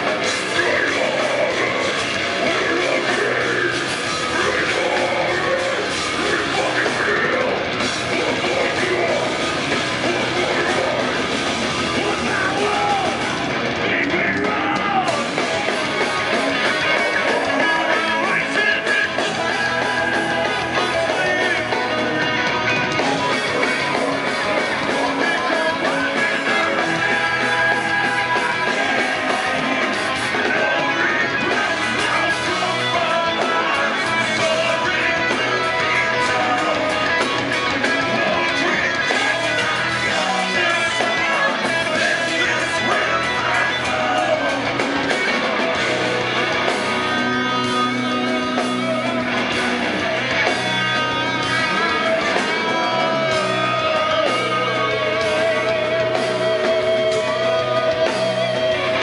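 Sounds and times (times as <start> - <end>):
metal band playing live: 0.0 - 59.0
singer's vocals: 0.0 - 59.0.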